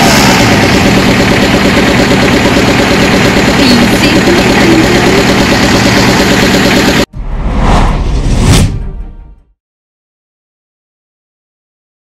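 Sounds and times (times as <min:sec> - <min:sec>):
vehicle engine idling: 0:00.0 - 0:07.1.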